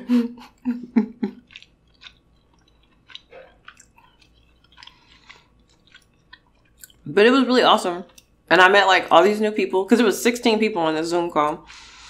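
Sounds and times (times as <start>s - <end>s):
close chewing with mouth clicks: 1.2s - 7.0s, 8.1s - 8.3s.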